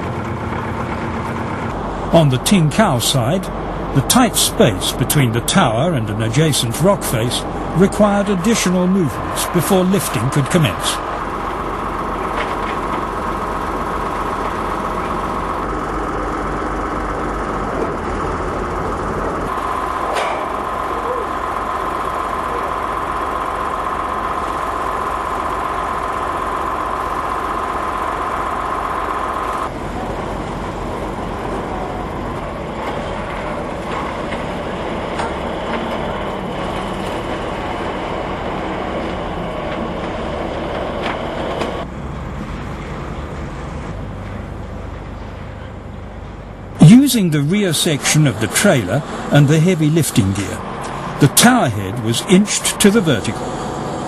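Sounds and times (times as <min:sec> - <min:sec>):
heavy trailer engine running: 0:00.0 - 0:54.0
steady high whine: 0:46.7 - 0:54.0.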